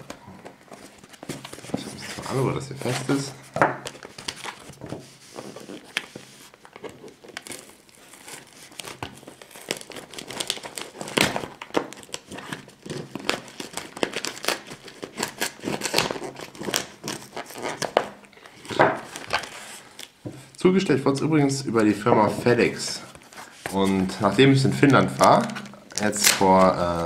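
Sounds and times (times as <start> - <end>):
tape and paper crinkling: 0.0 - 20.6, 21.6 - 27.0
packing tape slit and peeled: 5.3 - 20.2, 24.8 - 26.8.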